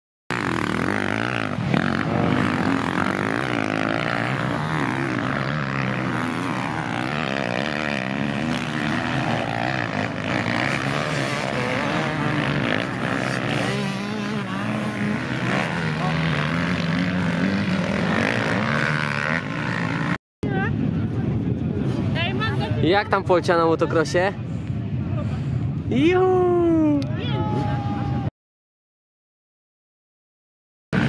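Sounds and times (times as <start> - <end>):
dirt bike engines revving: 0.3 - 28.3.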